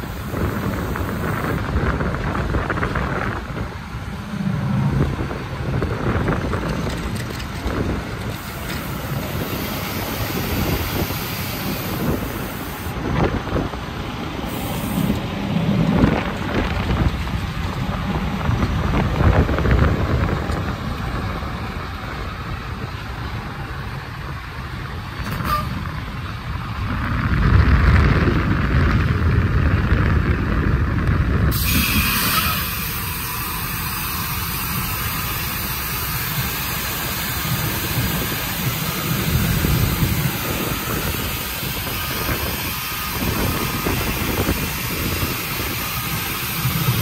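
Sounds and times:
heavy truck engine rumbling: 0:00.0 - 0:47.0
brief hissing: 0:14.5 - 0:15.2, 0:31.5 - 0:37.2.

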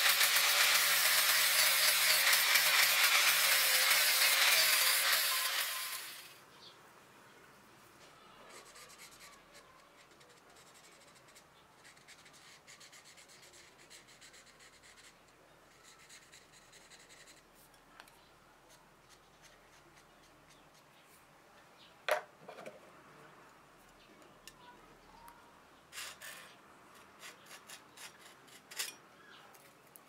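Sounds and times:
marker pen scratching on steel: 0:08.5 - 0:17.5, 0:25.9 - 0:29.0.

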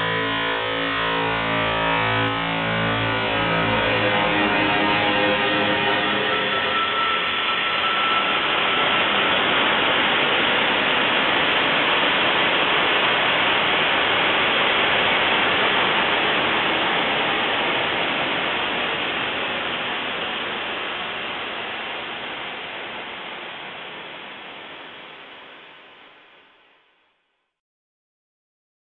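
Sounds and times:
smeared static hiss: 0:00.0 - 0:27.6
faint held tone: 0:03.0 - 0:10.6.

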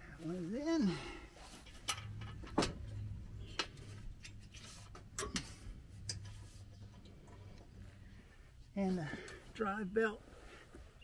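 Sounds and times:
low steady hum: 0:00.0 - 0:11.0
metal parts clicking and knocking: 0:01.6 - 0:07.5.

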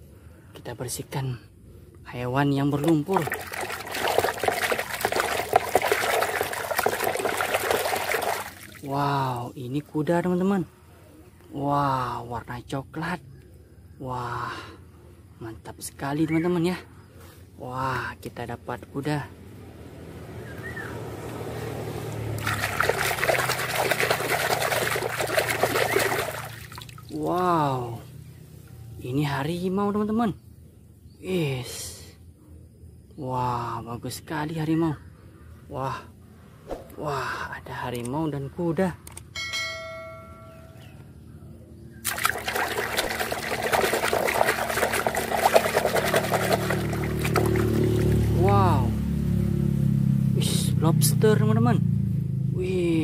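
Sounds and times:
hand splashing in water: 0:02.8 - 0:09.0, 0:22.3 - 0:27.3, 0:42.0 - 0:48.5.

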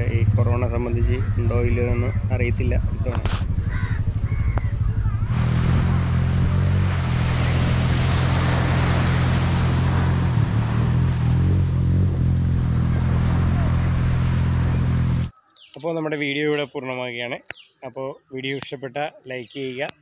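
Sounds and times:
heavy low rumble: 0:00.0 - 0:15.3
sea surf washing up beach: 0:05.3 - 0:11.8, 0:12.4 - 0:15.2.

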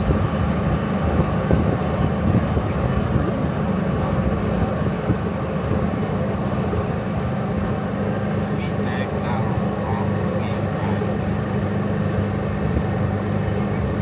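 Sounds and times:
low engine drone: 0:00.0 - 0:14.0.

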